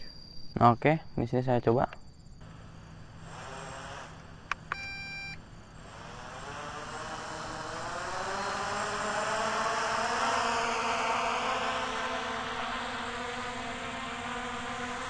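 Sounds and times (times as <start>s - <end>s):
drone propellers whining: 2.3s - 15.0s
short electronic beep: 4.7s - 5.4s.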